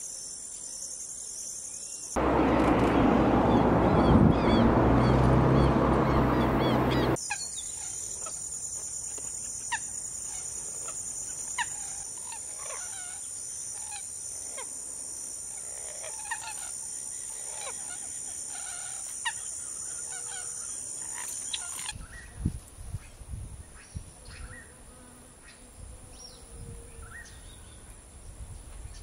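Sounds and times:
loud rushing noise: 0:02.2 - 0:07.2
sharp bird calls: 0:02.2 - 0:08.4.

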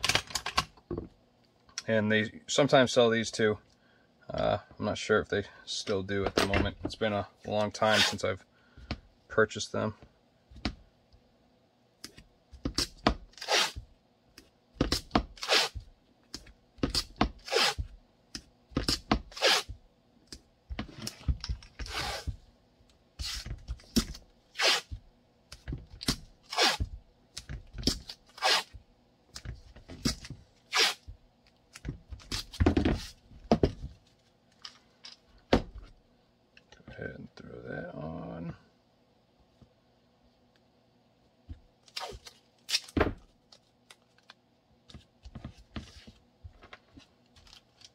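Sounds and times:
tearing crunching scrapes: 0:28.3 - 0:28.8, 0:30.7 - 0:31.0.

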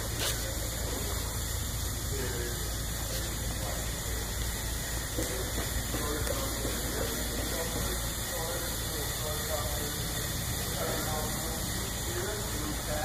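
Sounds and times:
faint voices: 0:00.0 - 0:13.0
steady hissing noise: 0:00.0 - 0:13.0.

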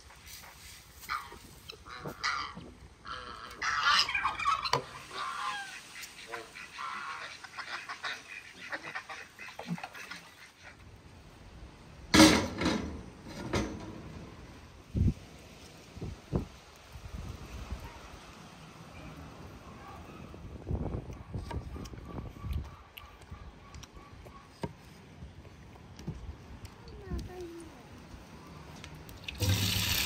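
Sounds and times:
farmyard poultry: 0:00.5 - 0:10.8
geese honking: 0:01.1 - 0:10.8.

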